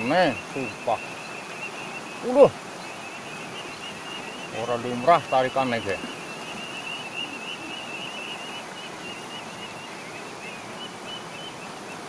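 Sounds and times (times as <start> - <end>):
faint high chirping: 0.0 - 12.0
water rushing around boulders: 0.0 - 12.0.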